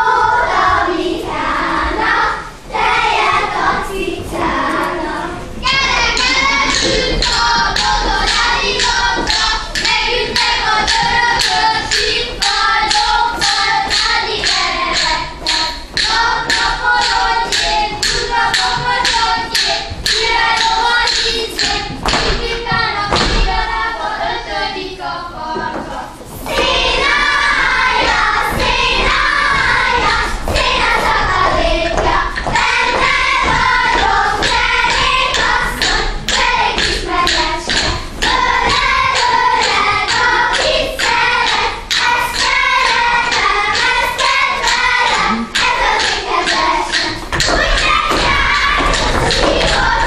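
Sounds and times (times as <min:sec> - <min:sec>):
children singing folk song: 0:00.0 - 0:50.0
dancers' sharp foot taps: 0:05.6 - 0:23.8, 0:25.5 - 0:50.0.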